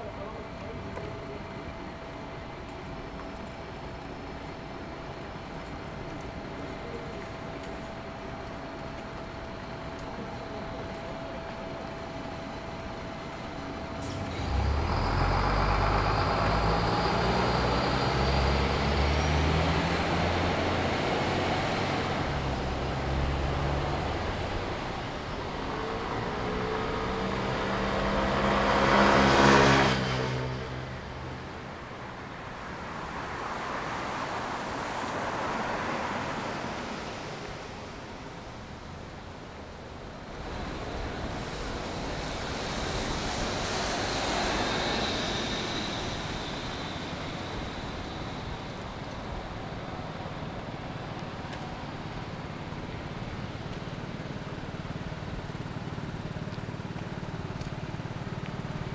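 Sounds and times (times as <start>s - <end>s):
heavy vehicle engine running low: 0.0s - 33.3s, 34.4s - 58.9s
light traffic noise: 0.0s - 58.9s
tyres hissing on wet road: 13.2s - 31.9s, 32.5s - 58.9s.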